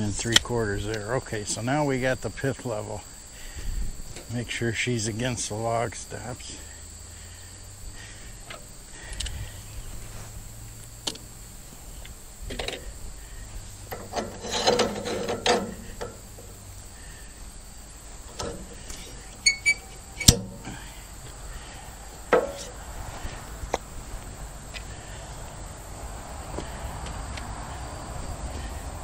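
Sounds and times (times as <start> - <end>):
metal clicks and knocks: 13.9 - 16.6, 18.3 - 20.6, 22.3 - 22.8
metal scraping: 13.9 - 16.6, 18.2 - 20.8, 22.3 - 22.8.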